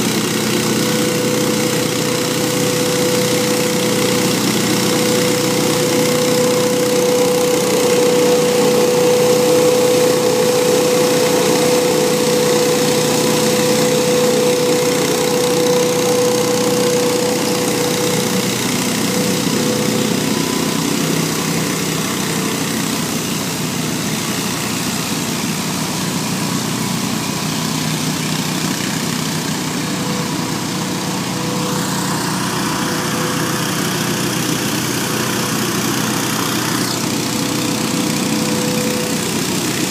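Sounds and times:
leaf blower droning: 0:00.0 - 0:39.9.

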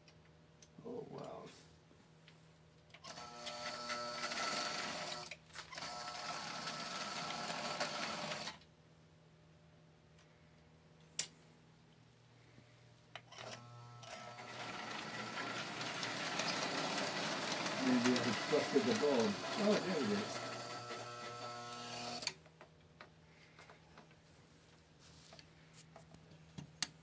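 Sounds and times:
toy train motor whirring: 0:13.4 - 0:22.4.

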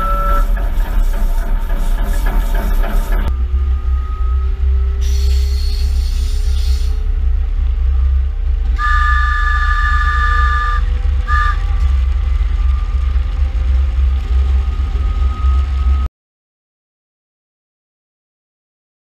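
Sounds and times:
locomotive horn: 0:00.0 - 0:01.1, 0:07.8 - 0:12.1
locomotive running rumble: 0:00.0 - 0:16.1.

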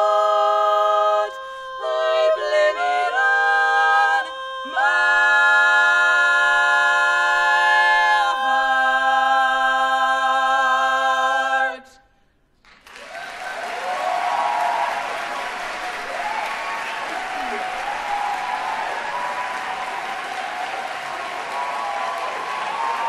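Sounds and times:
women singing a cappella harmony: 0:00.0 - 0:12.0
audience applause: 0:12.6 - 0:23.0.

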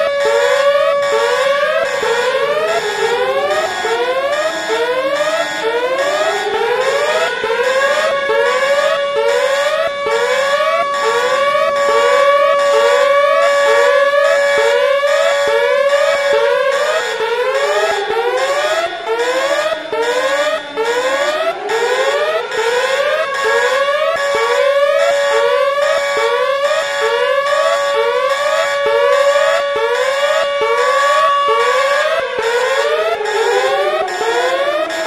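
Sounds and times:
wailing siren: 0:00.0 - 0:35.0.

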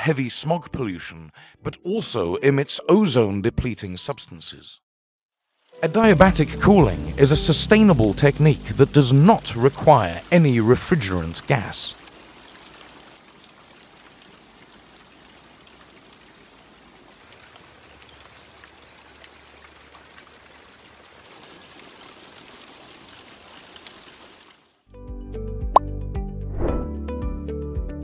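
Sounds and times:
water splashing hiss: 0:07.1 - 0:24.7
faint water drips: 0:08.1 - 0:24.8.

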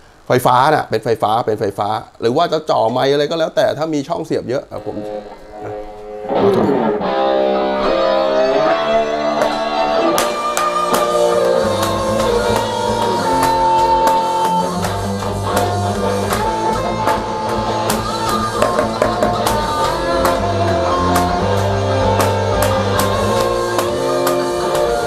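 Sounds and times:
electric guitar: 0:04.8 - 0:25.0
bass: 0:07.9 - 0:25.0
electronic drum kit hits: 0:10.2 - 0:24.9.

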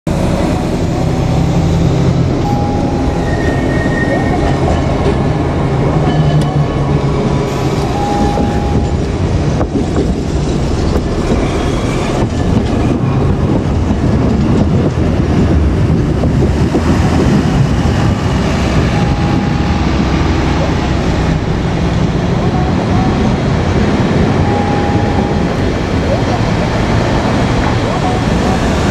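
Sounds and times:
streetcar and traffic rumble: 0:00.0 - 0:28.9
high squeals: 0:02.4 - 0:04.4.

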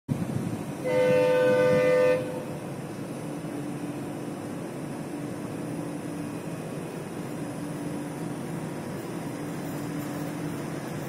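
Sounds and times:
train low rumble: 0:00.1 - 0:11.0
locomotive horn blast: 0:00.8 - 0:02.6.

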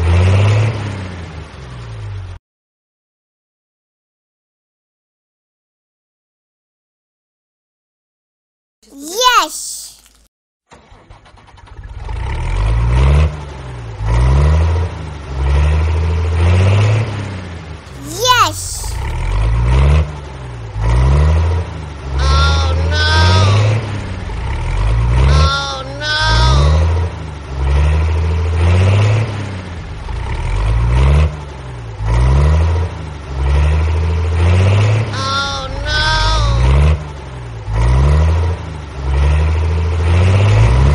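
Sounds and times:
tractor engine revving: 0:10.7 - 0:18.0, 0:19.0 - 0:25.6, 0:26.3 - 0:40.9.

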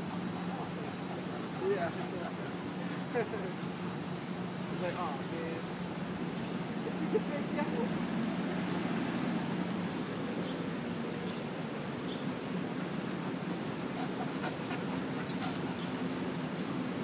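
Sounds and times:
steady background hum: 0:00.0 - 0:17.0
dogs vocalising faintly: 0:13.1 - 0:16.6.

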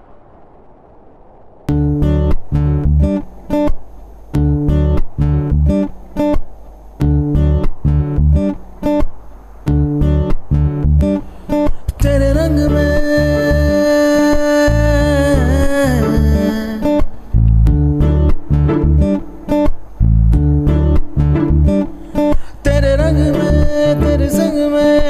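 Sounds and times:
bass: 0:01.7 - 0:03.2, 0:04.4 - 0:05.9, 0:07.0 - 0:08.5, 0:09.7 - 0:11.2, 0:11.9 - 0:13.8, 0:14.7 - 0:16.6, 0:17.3 - 0:19.2, 0:19.9 - 0:21.9, 0:22.6 - 0:24.6
acoustic guitar strumming: 0:01.7 - 0:25.0.

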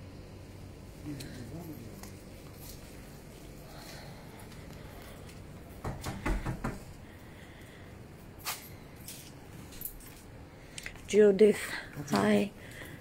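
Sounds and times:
quiet outdoor background noise: 0:00.0 - 0:13.0
sharp knocks and clacks: 0:05.8 - 0:06.9.

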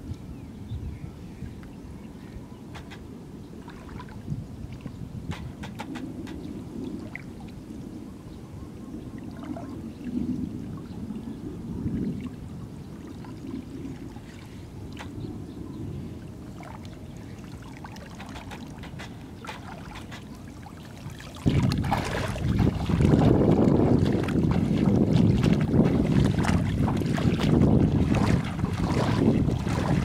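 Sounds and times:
wind buffeting microphone: 0:00.0 - 0:30.0
wading steps sloshing in water: 0:02.8 - 0:07.6, 0:16.4 - 0:30.0
small splashes: 0:03.6 - 0:07.6, 0:16.6 - 0:30.0.

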